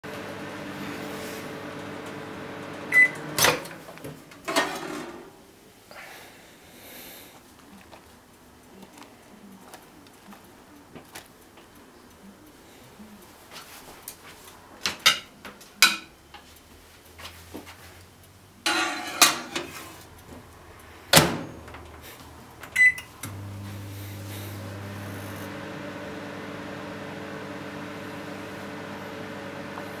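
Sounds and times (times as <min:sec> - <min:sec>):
microwave oven humming: 0:00.0 - 0:03.8, 0:22.7 - 0:30.0
plate clattering: 0:18.7 - 0:19.8
keypad beep: 0:22.8 - 0:23.1.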